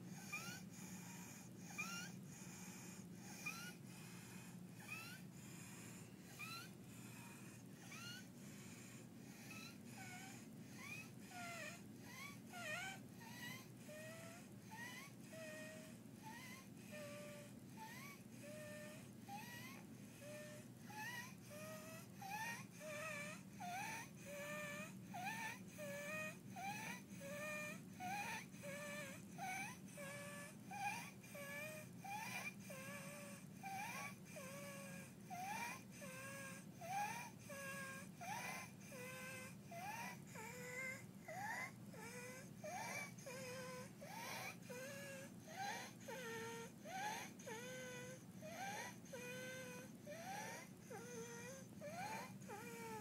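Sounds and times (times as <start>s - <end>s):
child breathing with stridor: 0.0s - 27.2s.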